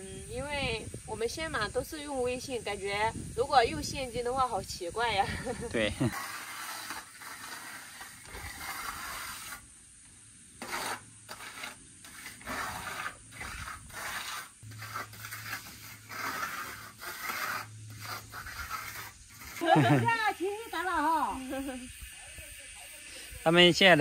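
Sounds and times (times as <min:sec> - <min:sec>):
trowel scraping wet cement: 0:05.4 - 0:09.6, 0:10.6 - 0:20.9.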